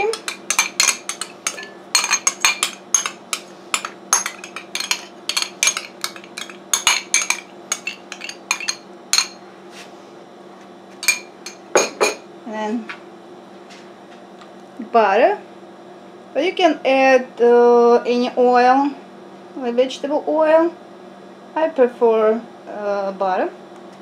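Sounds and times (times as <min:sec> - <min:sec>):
metal spoon tapping glass bowl: 0:00.0 - 0:09.4, 0:11.0 - 0:12.2.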